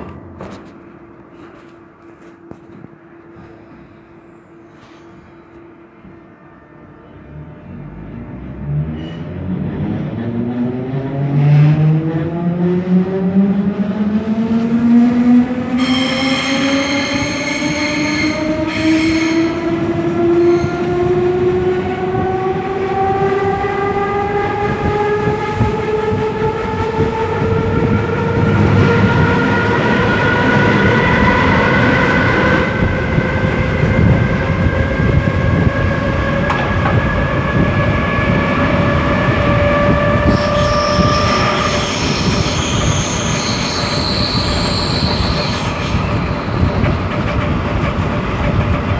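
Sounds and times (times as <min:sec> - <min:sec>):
wheel and rail rumble: 0:18.4 - 0:48.9.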